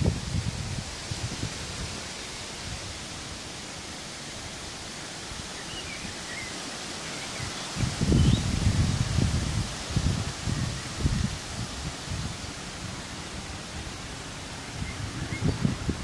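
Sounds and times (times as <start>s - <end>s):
wind buffeting microphone: 0.0s - 3.2s, 7.7s - 16.0s
wind through trees: 0.0s - 16.0s.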